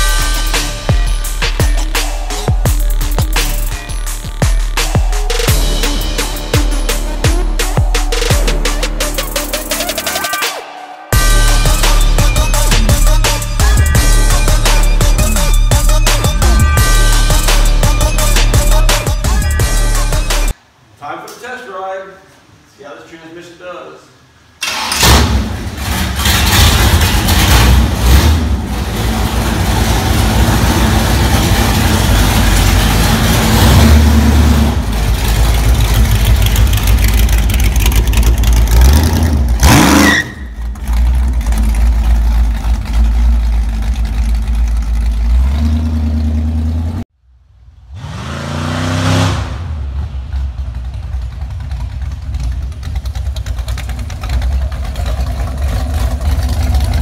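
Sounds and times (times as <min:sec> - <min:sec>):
motorcycle engine revving: 0:26.6 - 0:47.0, 0:47.9 - 0:57.0.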